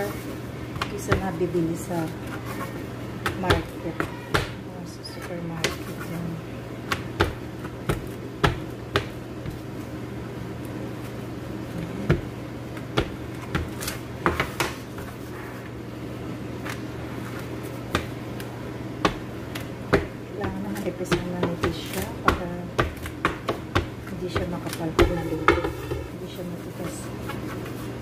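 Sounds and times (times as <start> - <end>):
rolling pin rolling dough: 0.0 - 10.0, 16.8 - 28.0.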